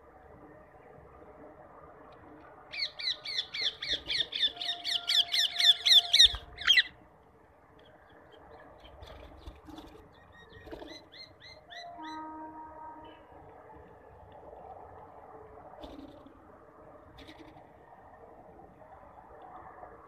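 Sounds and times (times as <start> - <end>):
parakeet shrill squawks: 2.8 - 6.9.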